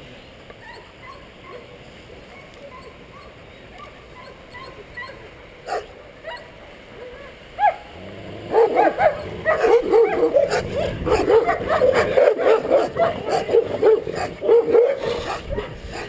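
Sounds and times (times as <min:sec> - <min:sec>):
dog barking: 0:05.7 - 0:06.4, 0:08.5 - 0:16.0.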